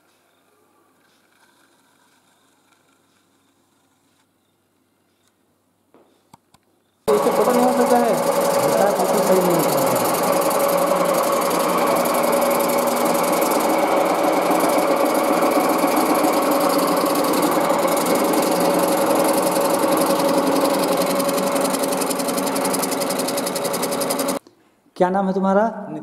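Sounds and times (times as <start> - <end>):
lathe motor humming and whining: 7.1 - 24.4.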